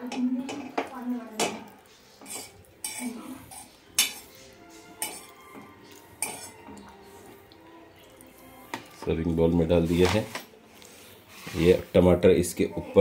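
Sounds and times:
fork scraping metal pan: 1.4s - 7.4s.

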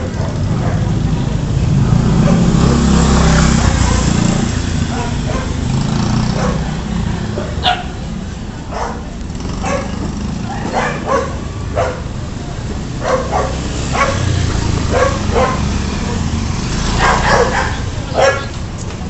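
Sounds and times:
dog barking: 0.1s - 1.0s, 2.2s - 2.5s, 3.7s - 5.6s, 6.3s - 8.0s, 8.7s - 12.1s, 12.9s - 18.6s
small motorcycle engine running: 9.3s - 12.0s.

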